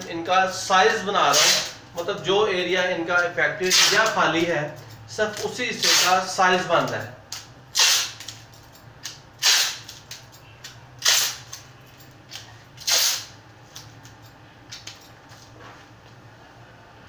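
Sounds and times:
scissors cutting tape clicks: 6.8s - 8.4s.

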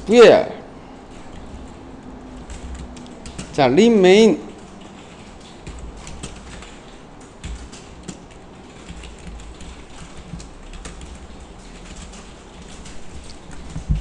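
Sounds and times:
low steady hum: 0.0s - 14.0s
keyboard keystrokes clicking: 1.1s - 14.0s.

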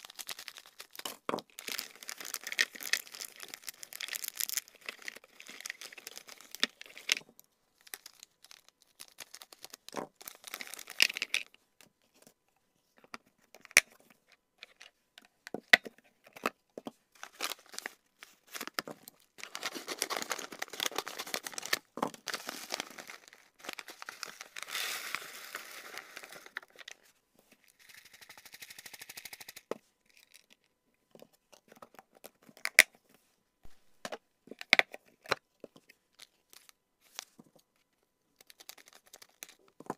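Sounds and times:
paper pouch crinkling and tearing: 0.0s - 7.2s, 7.8s - 11.4s, 17.2s - 18.8s, 19.4s - 26.9s, 38.4s - 39.6s
plastic bag crinkling: 0.0s - 11.4s, 17.2s - 26.8s.

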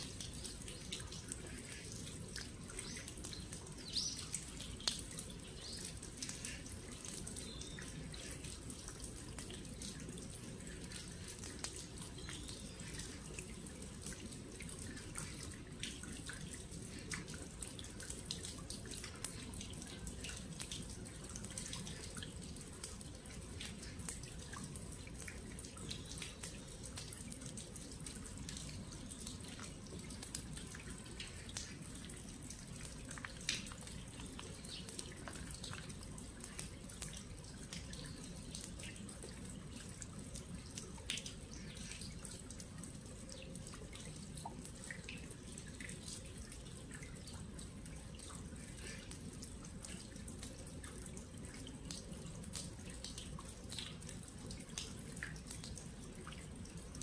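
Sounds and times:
rain drops on gravel: 0.0s - 57.0s.

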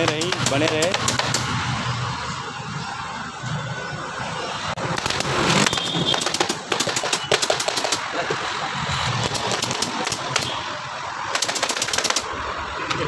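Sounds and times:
pneumatic staple gun firing: 0.0s - 1.6s, 5.0s - 8.0s, 9.2s - 10.5s.

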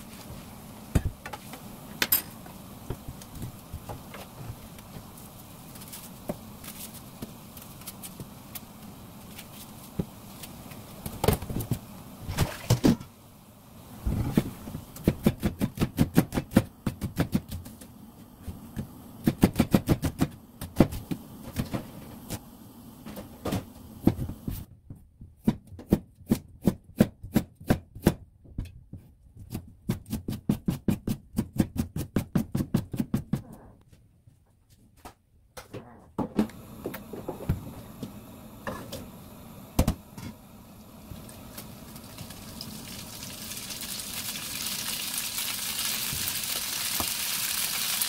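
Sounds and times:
knife chopping vegetables on cutting board: 14.3s - 17.8s, 19.2s - 21.7s, 24.9s - 33.6s.

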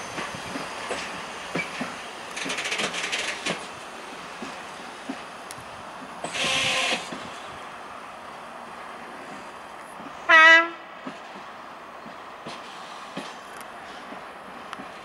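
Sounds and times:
tank wagons rolling past: 0.6s - 3.8s
short train horn blast: 10.3s - 10.8s.

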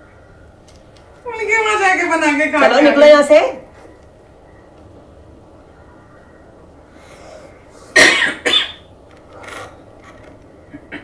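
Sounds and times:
person coughing: 7.9s - 8.8s.

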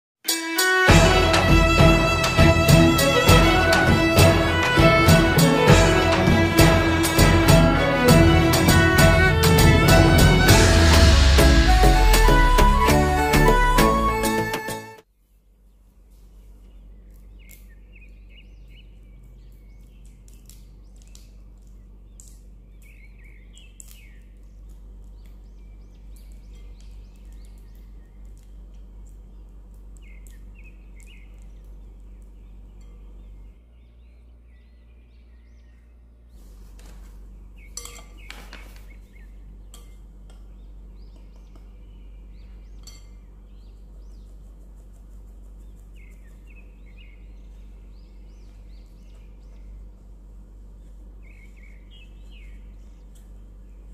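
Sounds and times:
birds chirping: 0.9s - 14.9s, 15.6s - 53.9s
steady low hum: 0.9s - 53.9s
glass and metal kitchenware clinking: 37.8s - 38.2s.

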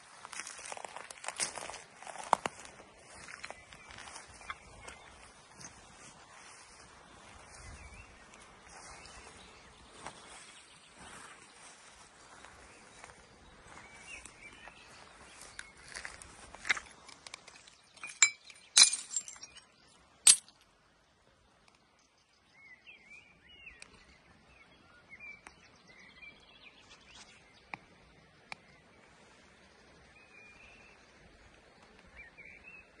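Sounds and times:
faint bird chirps: 3.0s - 16.8s
broken glass clinking and crunching: 17.4s - 19.6s, 20.3s - 20.5s.

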